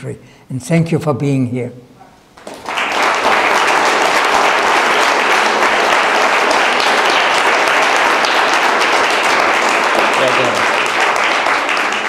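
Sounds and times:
audience applauding: 2.4s - 12.0s.

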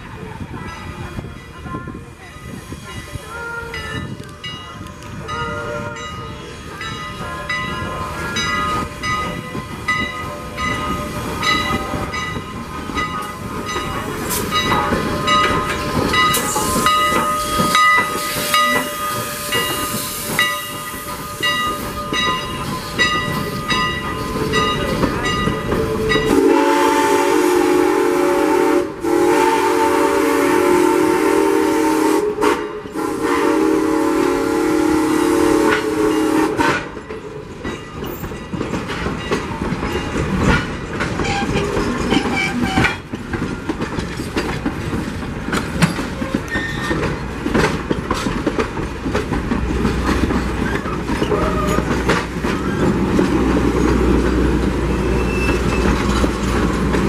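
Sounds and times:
steam locomotive chuffing: 2.0s - 57.0s
steam whistle blast: 26.2s - 36.9s.

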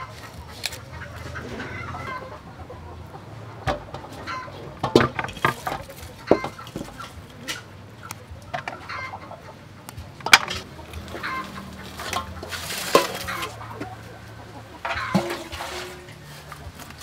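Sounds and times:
chickens clucking: 0.0s - 17.0s
metal bowls clinking: 10.3s - 14.0s, 14.8s - 17.0s.

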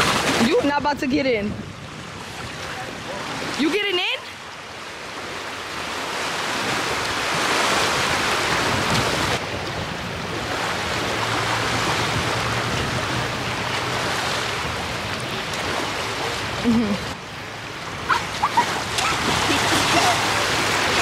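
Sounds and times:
wind on microphone: 0.0s - 3.7s, 5.2s - 17.2s
water rushing at lake shore: 0.0s - 21.0s.

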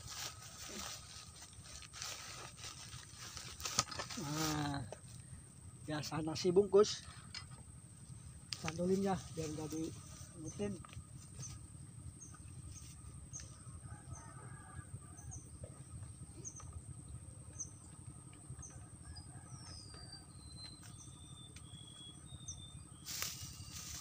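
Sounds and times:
high insect-like whine: 0.0s - 19.2s, 20.6s - 24.0s
small birds chirping: 15.3s - 24.0s
loud rustling: 23.1s - 24.0s.

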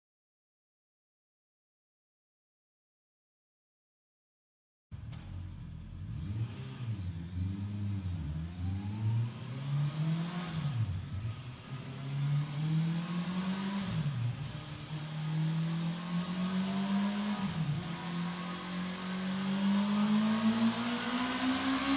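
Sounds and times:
motorcycle engine revving: 5.0s - 21.9s.

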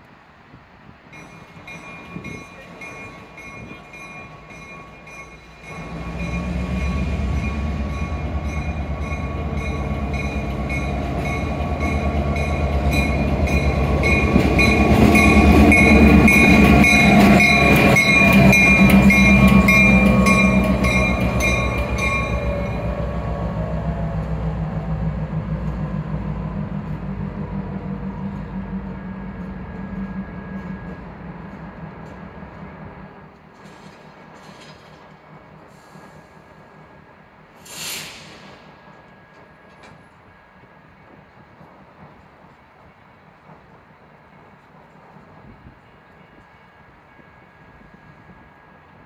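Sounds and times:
locomotive bell ringing: 1.2s - 24.3s
locomotive engine rumble: 1.6s - 36.8s.

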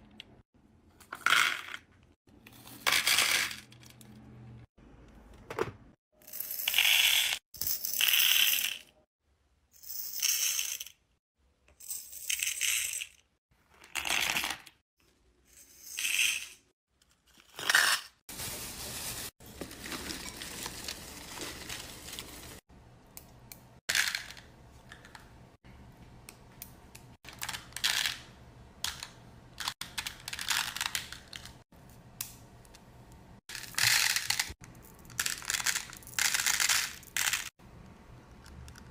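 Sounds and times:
plastic bag crinkling: 18.3s - 22.6s
beads clattering into plastic box: 33.5s - 37.5s.

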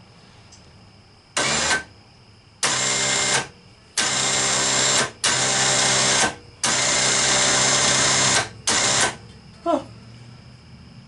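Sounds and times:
electric winch motor running: 1.4s - 1.9s, 2.6s - 9.2s.

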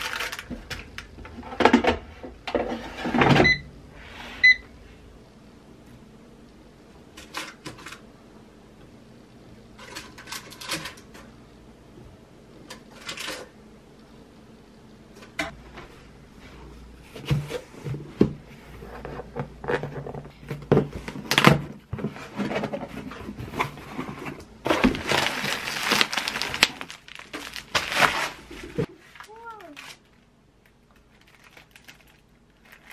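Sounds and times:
tape tearing: 24.8s - 28.9s.

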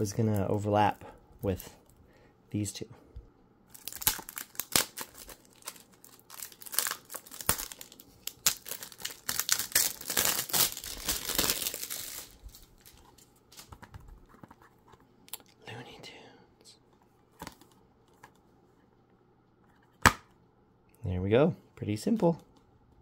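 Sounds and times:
plastic wrap crackling and tearing: 3.7s - 13.7s.

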